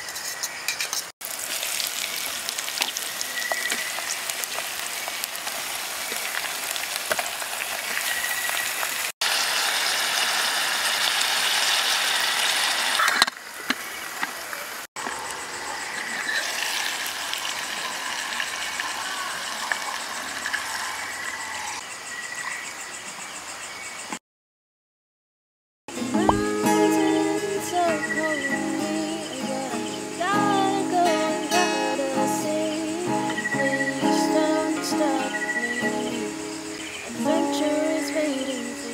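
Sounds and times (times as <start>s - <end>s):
food sizzling in a metal pot: 0.8s - 13.3s, 16.2s - 21.4s, 26.0s - 38.9s.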